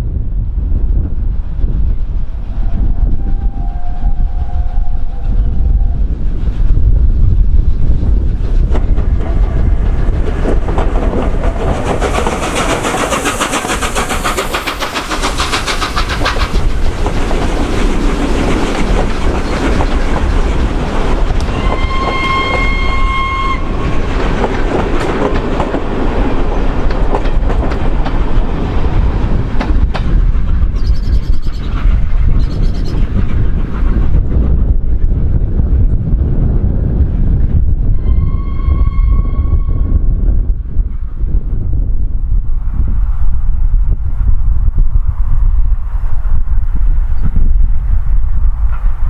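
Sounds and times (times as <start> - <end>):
steam locomotive exhaust rushing: 1.0 - 49.0
train whistle: 2.6 - 6.0, 21.4 - 23.8, 38.0 - 40.0
train wheels clicking over rail joints: 8.0 - 34.4.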